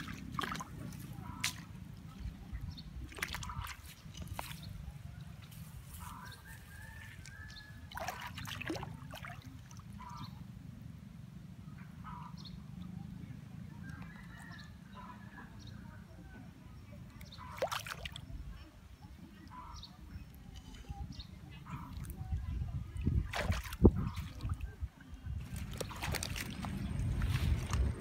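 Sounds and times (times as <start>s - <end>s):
water splashing and dripping: 0.0s - 1.8s, 3.0s - 4.7s, 7.9s - 10.0s, 17.5s - 18.2s, 23.0s - 24.8s, 25.4s - 28.0s
distant fowl calling: 5.9s - 8.6s, 11.7s - 12.7s
low wind rumble: 19.6s - 28.0s.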